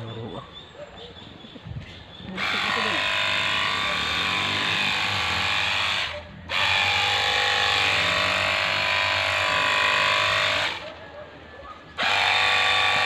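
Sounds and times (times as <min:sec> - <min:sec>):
pump motor whining: 0:02.3 - 0:11.0, 0:12.0 - 0:13.0.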